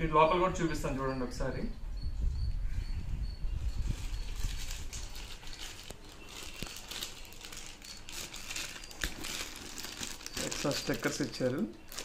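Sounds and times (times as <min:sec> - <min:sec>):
plastic packet crinkling: 0:03.8 - 0:12.0.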